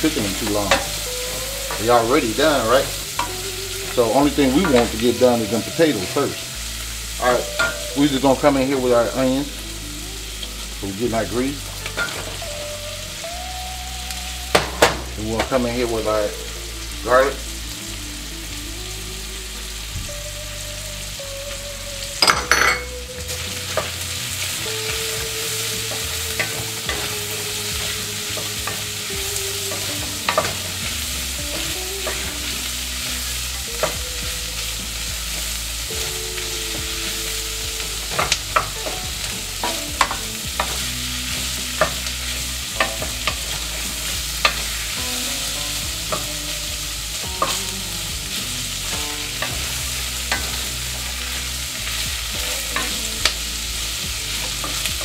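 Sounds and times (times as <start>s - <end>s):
food sizzling in grease: 0.0s - 55.0s.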